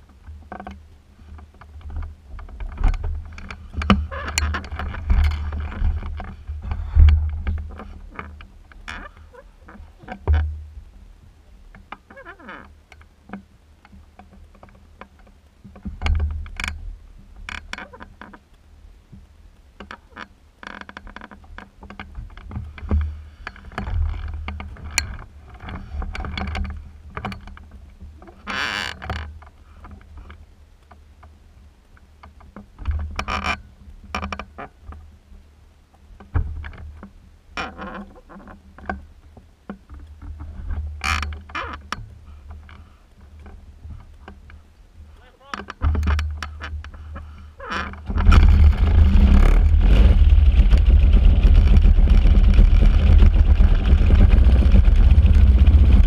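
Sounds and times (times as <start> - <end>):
rustles and small knocks: 0.0 - 56.0
wind gusting over microphone: 48.0 - 56.0.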